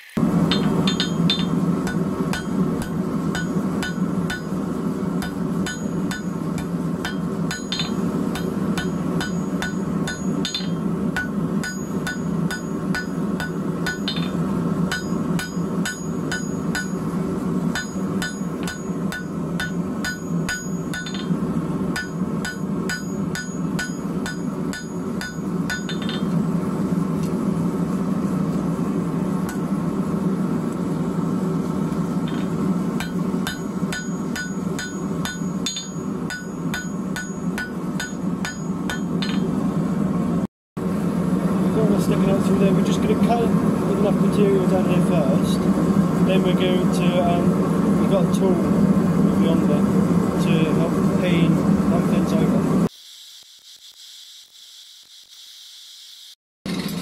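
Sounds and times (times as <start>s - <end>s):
steady low drone: 0.2s - 52.9s
hammer striking steel on anvil: 0.4s - 26.4s, 29.4s - 29.7s, 32.2s - 39.6s.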